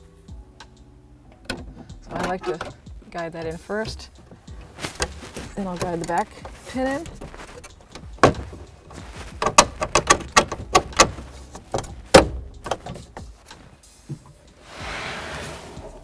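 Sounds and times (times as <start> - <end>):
plastic trim clicks and knocks: 9.4 - 13.1
short rustling scrape: 14.6 - 16.0.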